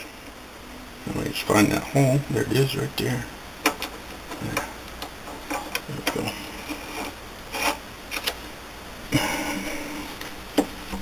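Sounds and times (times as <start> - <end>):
short scraping rub: 6.5 - 7.8.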